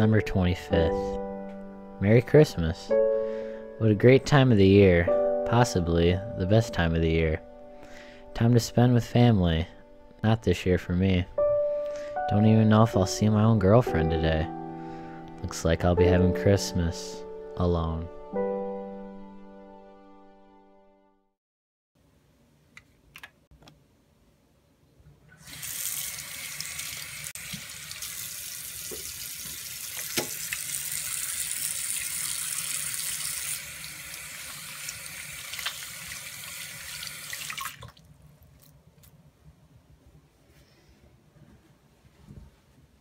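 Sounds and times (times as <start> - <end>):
faucet running into sink: 25.4 - 38.0.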